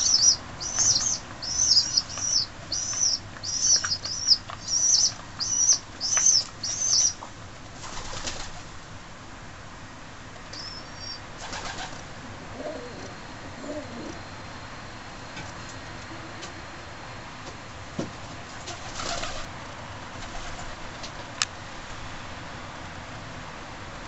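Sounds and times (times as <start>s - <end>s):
pigeon chicks squeaky peeps: 0.0s - 8.6s, 10.5s - 12.0s
wing fluttering: 0.0s - 8.7s, 10.5s - 12.1s, 18.6s - 19.5s.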